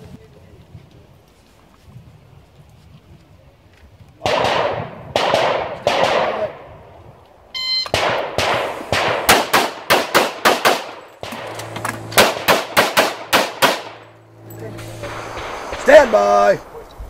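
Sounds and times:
pistol shots: 4.2 - 6.8, 7.9 - 14.2
shot timer beep: 7.6 - 8.0.

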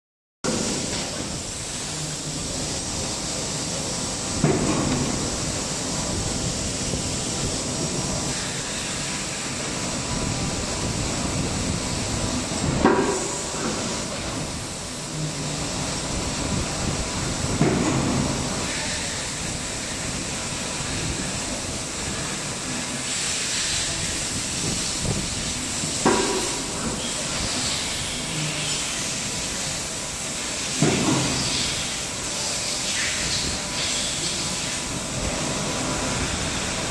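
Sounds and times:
injection moulding machine running: 0.5 - 36.9.

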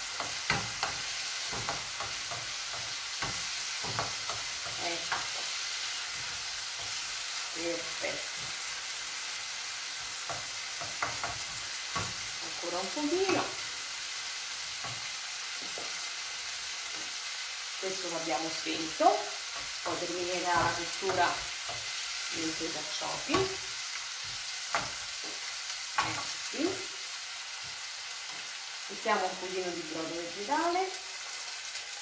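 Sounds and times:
artichokes sizzling in a frying pan: 0.0 - 32.0
wooden spoon scraping a pan: 0.1 - 9.0, 18.8 - 26.4.

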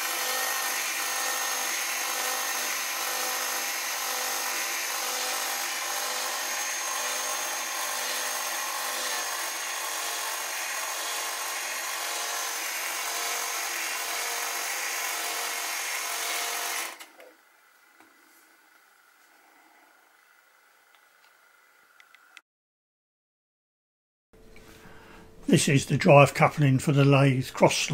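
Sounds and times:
cordless drill motor whine: 0.0 - 17.3.

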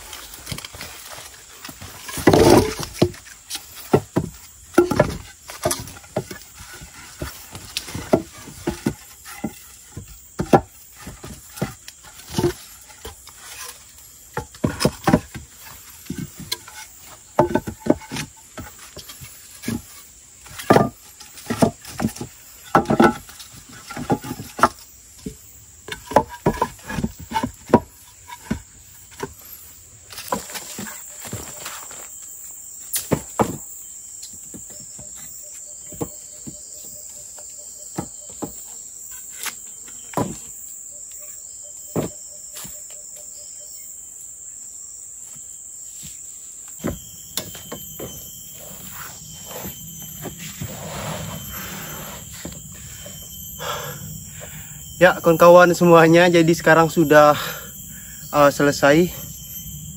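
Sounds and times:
wooden poles knocking together: 0.0 - 32.0, 32.9 - 38.7, 39.4 - 40.5, 46.7 - 50.7.

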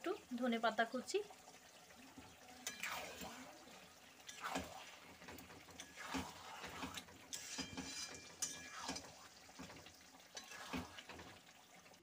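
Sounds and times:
spatula stirring thick curry: 1.6 - 12.0
spatula scraping and knocking pan: 4.2 - 11.5.

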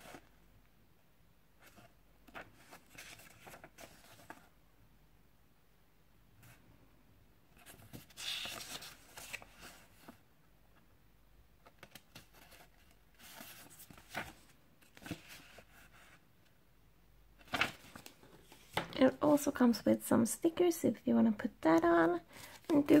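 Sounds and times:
paper pages rustling: 1.6 - 4.5, 7.6 - 10.2, 11.6 - 16.2, 17.4 - 19.6, 21.8 - 23.0.

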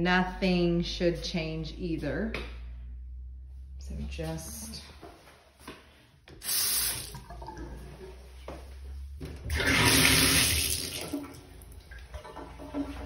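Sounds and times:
sink faucet running: 6.4 - 7.6, 9.5 - 11.8
bathtub tap running water: 6.4 - 7.9, 9.5 - 13.0.

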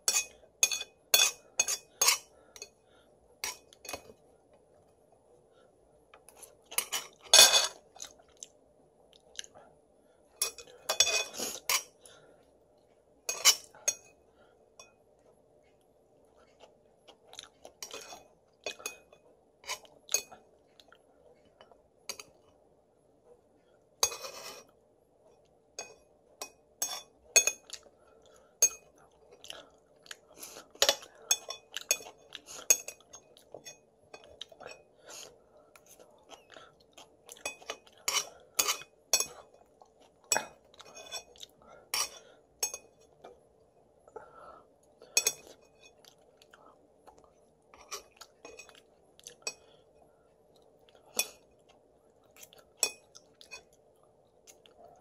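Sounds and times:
chopsticks scraping ceramic plate: 0.0 - 2.7, 10.4 - 12.0, 24.0 - 24.7, 37.4 - 39.4, 40.3 - 42.9
faint steady hum: 0.0 - 55.0
person chewing: 6.2 - 9.7, 15.7 - 18.8, 19.7 - 22.5, 27.6 - 33.6, 34.2 - 42.4, 44.2 - 49.8, 50.4 - 55.0.

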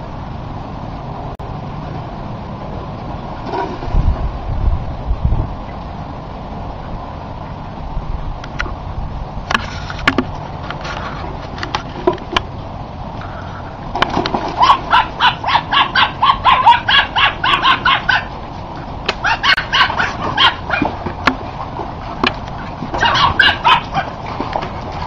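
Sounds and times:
rapid pitched animal calls: 14.6 - 18.4, 19.2 - 21.0, 22.9 - 24.2.

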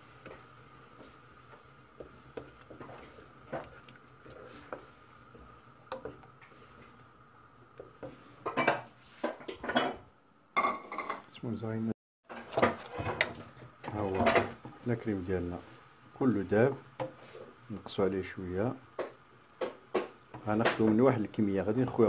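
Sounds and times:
wooden spatula scraping a saucepan: 0.0 - 7.1, 12.3 - 14.8, 16.4 - 17.9.

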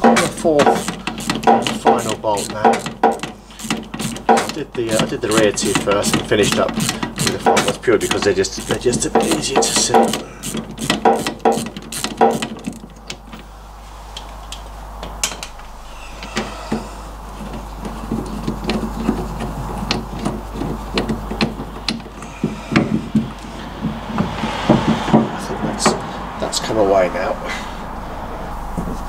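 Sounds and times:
ratchet clicking: 0.1 - 12.9.

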